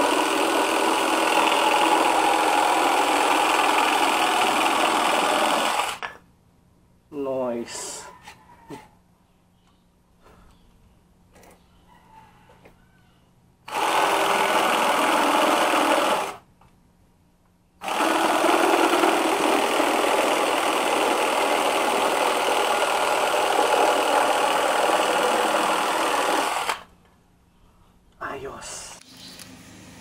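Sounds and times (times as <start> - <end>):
jigsaw blade sawing through wood: 0.0 - 6.0, 13.7 - 16.4, 17.8 - 26.9.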